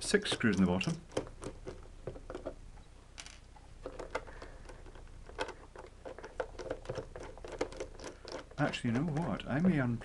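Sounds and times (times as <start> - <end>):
screwdriver clicking and scraping: 3.8 - 9.8.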